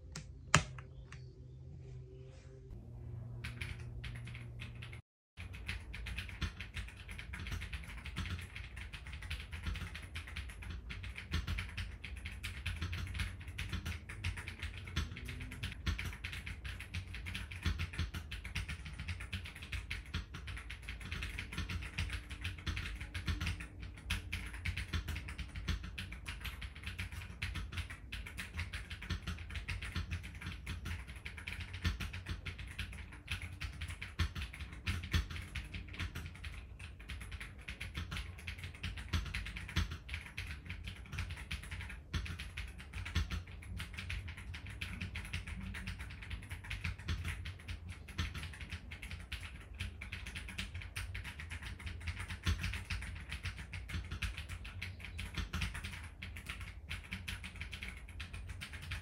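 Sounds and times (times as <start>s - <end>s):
fast typing on mechanical keyboard: 3.4s - 59.0s.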